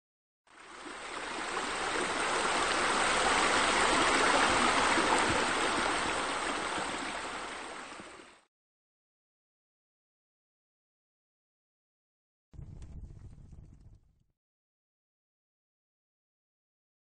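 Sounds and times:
water splashing from jets: 0.5 - 8.4.

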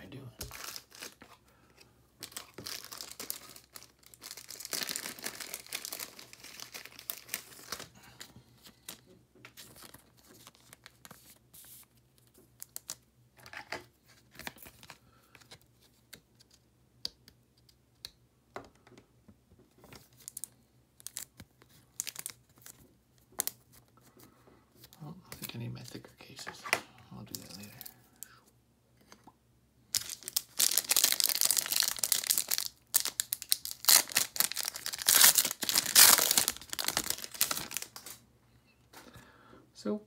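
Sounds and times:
plastic sleeve crinkling: 0.4 - 1.4, 2.2 - 11.8, 29.9 - 38.2.

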